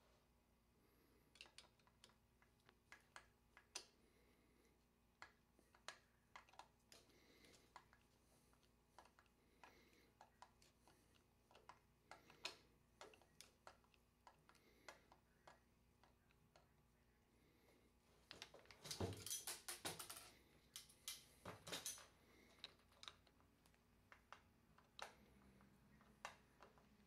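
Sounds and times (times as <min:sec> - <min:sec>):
screwdriver clicking and ticking: 0:05.2 - 0:16.8, 0:22.6 - 0:27.0.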